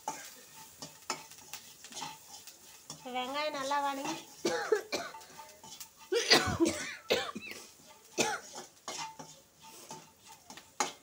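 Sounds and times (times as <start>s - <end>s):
person coughing: 4.5s - 5.2s, 6.2s - 7.6s.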